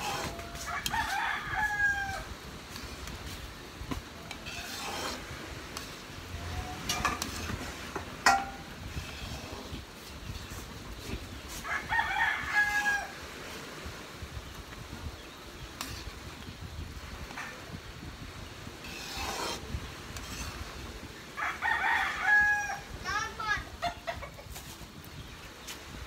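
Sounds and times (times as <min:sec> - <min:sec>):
spoon scraping metal pan: 0:00.0 - 0:01.0, 0:04.2 - 0:10.6, 0:15.8 - 0:16.2, 0:18.8 - 0:20.8
rooster crowing: 0:00.0 - 0:02.3, 0:11.6 - 0:13.2, 0:21.4 - 0:22.9.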